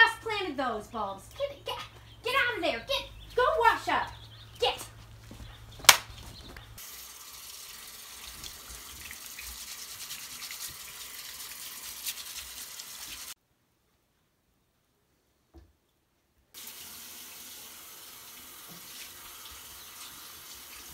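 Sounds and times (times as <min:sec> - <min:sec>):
faucet running into sink: 0:06.8 - 0:13.3, 0:16.6 - 0:20.9
hands scrubbing under water: 0:08.3 - 0:13.3.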